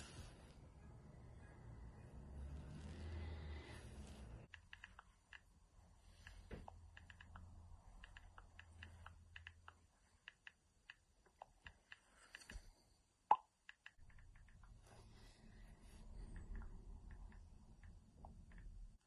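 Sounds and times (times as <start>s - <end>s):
typing clicks on phone keyboard: 4.5s - 5.5s, 6.2s - 12.6s.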